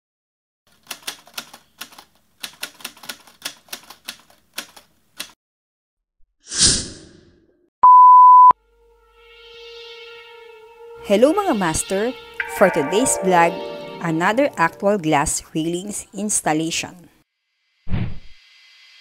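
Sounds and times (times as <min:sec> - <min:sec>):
high test tone beep: 0:07.8 - 0:08.6, 0:12.4 - 0:15.2.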